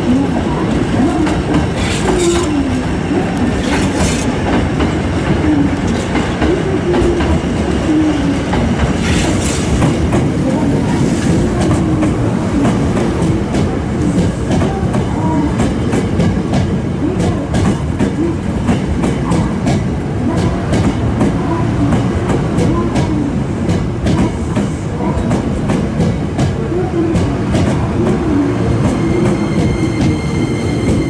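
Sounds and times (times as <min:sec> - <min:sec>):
electric train rumbling past: 0:00.0 - 0:31.0
wheels clacking over rail joints: 0:00.7 - 0:07.8.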